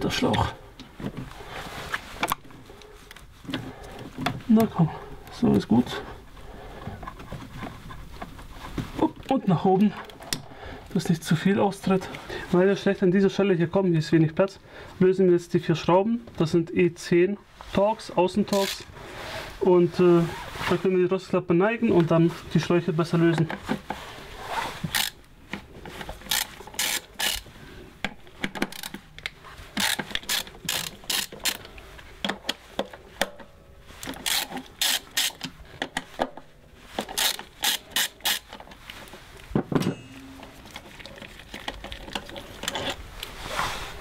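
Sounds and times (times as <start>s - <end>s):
ratchet wrench clicking: 24.9s - 25.2s, 26.3s - 27.4s, 29.8s - 31.6s, 34.2s - 35.4s, 37.1s - 38.5s.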